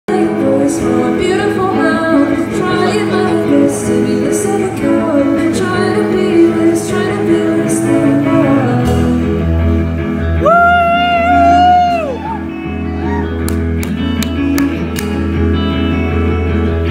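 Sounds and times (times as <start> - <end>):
woman singing: 0.1 - 9.4
indie rock band playing live: 0.1 - 16.9
heavy bass line: 2.2 - 16.9.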